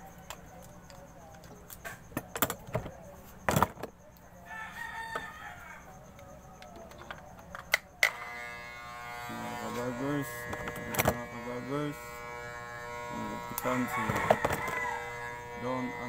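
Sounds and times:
handling knocks and clicks: 0.2s - 4.0s, 6.5s - 8.1s
rooster crowing: 4.4s - 6.0s, 13.7s - 16.0s
hair clipper buzzing: 8.0s - 16.0s.

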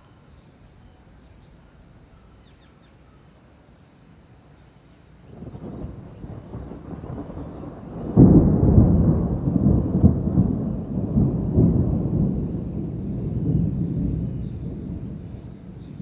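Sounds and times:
thunder rumbling and clapping: 5.4s - 16.0s.

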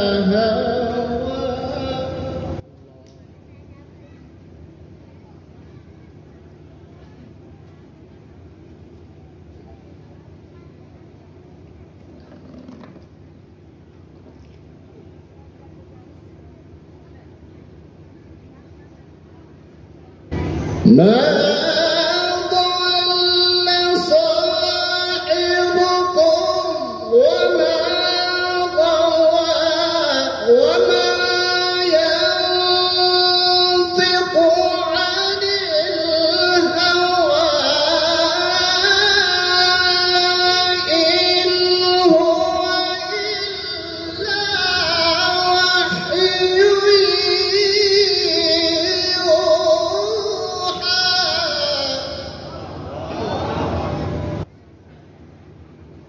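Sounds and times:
man reciting melodically into microphone: 0.0s - 2.6s, 20.8s - 52.8s.

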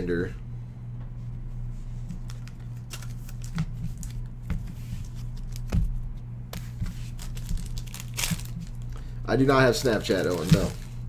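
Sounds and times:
low electrical hum: 0.0s - 11.0s
cards tapping and clicking: 2.2s - 5.9s, 9.8s - 10.9s.

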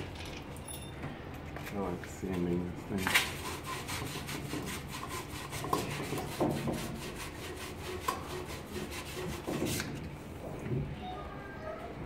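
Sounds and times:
hand tool rubbing copper pipe: 3.1s - 10.0s.

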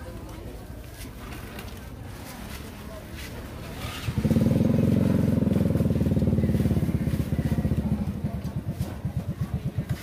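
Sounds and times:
small motorcycle engine: 3.7s - 10.0s.

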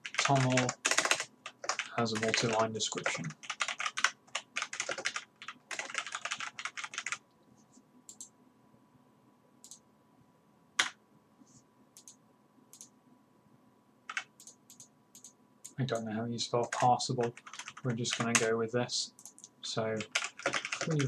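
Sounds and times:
fast typing on keyboard: 0.0s - 7.2s, 14.1s - 15.3s, 16.6s - 18.5s, 19.2s - 21.0s
keyboard clicks: 0.0s - 7.2s, 8.1s - 8.3s, 12.0s - 12.9s, 14.1s - 16.0s, 19.2s - 21.0s.

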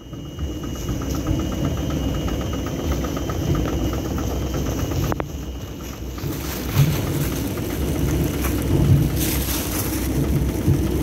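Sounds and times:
faint high whine: 0.0s - 11.0s
heavy machinery rumbling: 0.0s - 11.0s
regular ticking: 0.0s - 11.0s.

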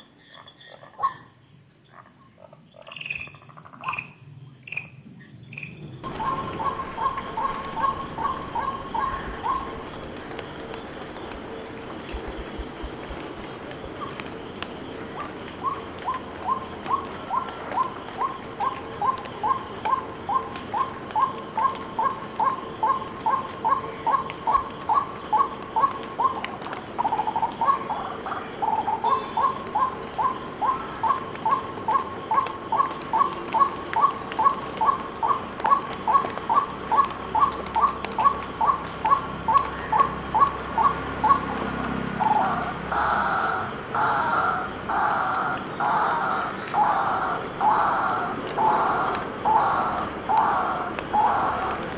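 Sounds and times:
waterhen calling: 6.0s - 51.9s.

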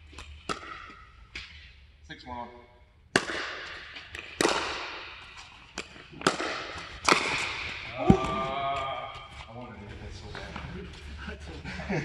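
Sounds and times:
paddles hitting plastic ball: 0.1s - 1.5s, 3.1s - 9.4s.

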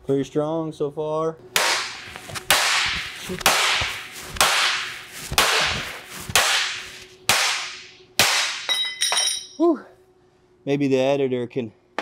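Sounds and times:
hammer striking steel: 1.6s - 9.6s.

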